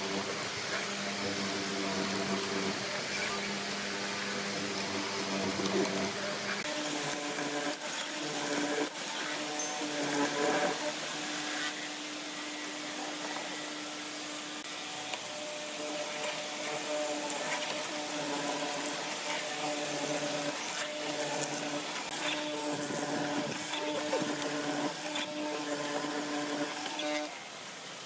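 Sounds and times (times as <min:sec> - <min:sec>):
mortiser motor humming: 0:00.0 - 0:27.4
chisel cutting into wood: 0:04.5 - 0:10.9, 0:15.9 - 0:27.3.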